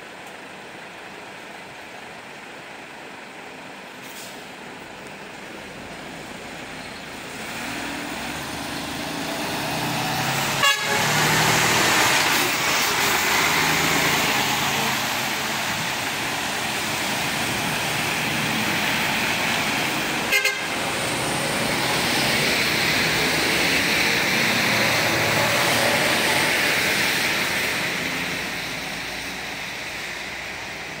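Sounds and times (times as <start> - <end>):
truck engine passing: 4.1 - 31.0
air horn notes: 10.5 - 11.6, 20.3 - 20.7.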